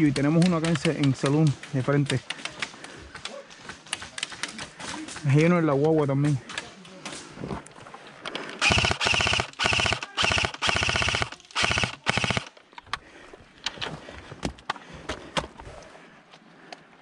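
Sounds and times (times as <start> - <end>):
airsoft rifle full auto bursts: 8.6 - 12.5.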